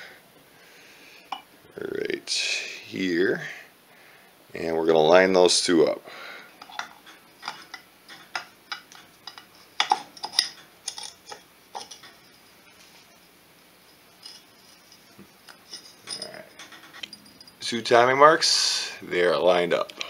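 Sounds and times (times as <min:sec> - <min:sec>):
metal gears clinking: 0:13.9 - 0:17.7.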